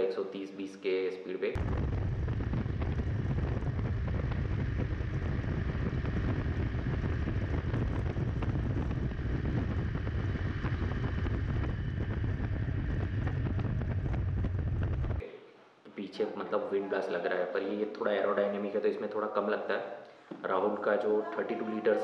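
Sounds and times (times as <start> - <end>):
motorcycle engine: 1.6 - 15.2
road noise: 1.6 - 15.2
wind buffeting microphone: 1.6 - 15.2.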